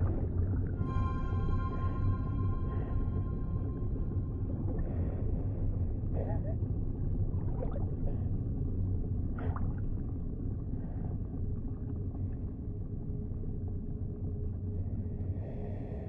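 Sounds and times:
low underwater rumble: 0:00.0 - 0:16.0
faint tonal chirp: 0:00.7 - 0:05.6
faint high tone: 0:00.8 - 0:04.8.

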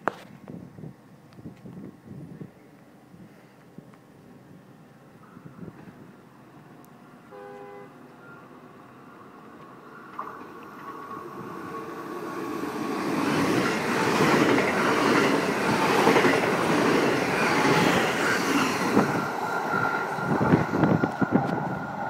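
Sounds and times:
train wheels rumbling on rail: 0:09.4 - 0:22.0.

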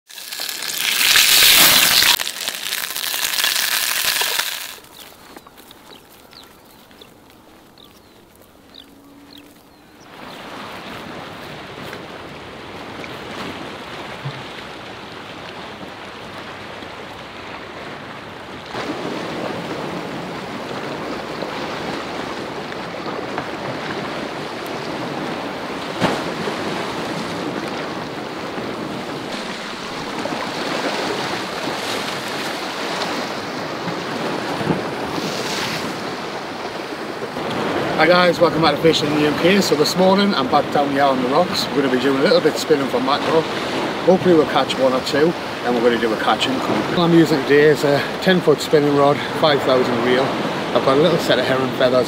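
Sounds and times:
wind: 0:00.0 - 0:52.0
fish sizzling in a frying pan: 0:00.1 - 0:05.1
sea waves on rocky shore: 0:00.1 - 0:52.0.

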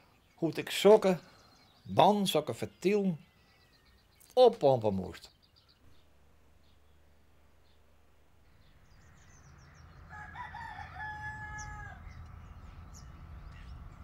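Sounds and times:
small birds chirping: 0:00.0 - 0:14.0
low steady rumble: 0:05.9 - 0:14.0
fowl crowing: 0:10.0 - 0:12.3.

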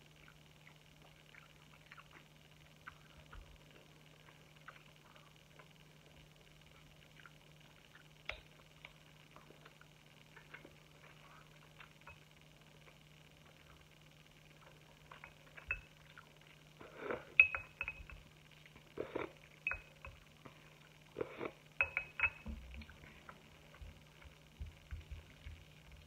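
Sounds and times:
chewing: 0:00.0 - 0:26.0
metal fork clinking on dishes: 0:17.4 - 0:18.2, 0:19.7 - 0:20.2, 0:21.8 - 0:22.5.

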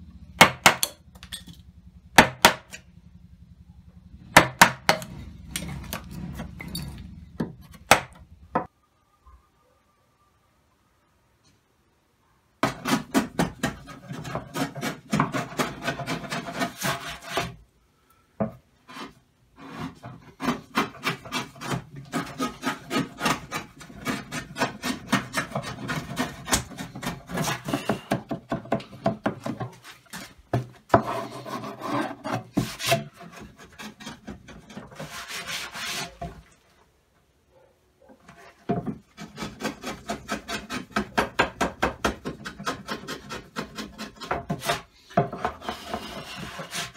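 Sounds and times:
chisel scraping wood: 0:12.6 - 0:17.6, 0:18.8 - 0:36.5, 0:38.2 - 0:46.9.

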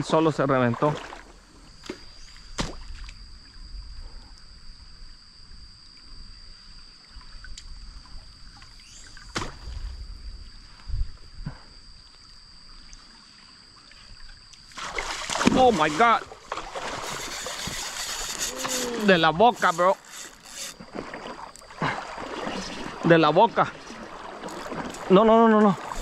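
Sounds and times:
wind: 0:00.0 - 0:26.0
river water rumbling: 0:14.6 - 0:26.0
steady high-pitched tone: 0:17.0 - 0:21.8.

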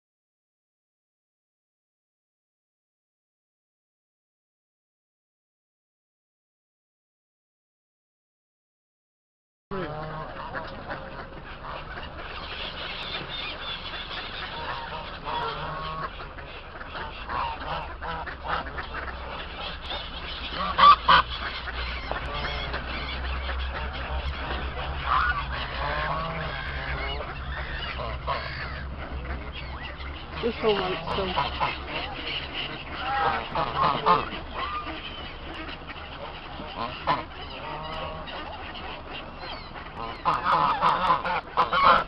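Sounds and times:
ducks quacking: 0:09.7 - 0:42.0
geese honking: 0:09.7 - 0:42.0.

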